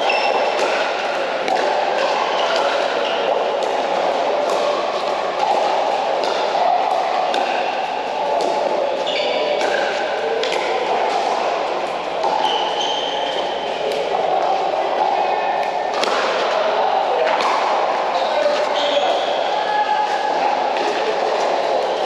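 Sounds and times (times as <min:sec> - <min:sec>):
shoe squeaks: 0:00.0 - 0:00.5, 0:09.0 - 0:09.6, 0:12.4 - 0:13.6, 0:18.6 - 0:19.4
people chattering: 0:00.0 - 0:22.0.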